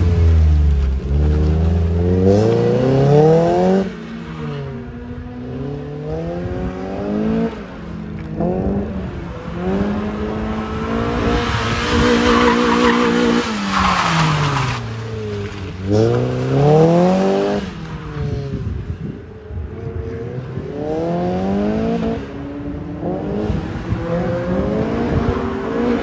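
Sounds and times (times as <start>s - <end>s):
tires squealing: 10.9s - 16.5s.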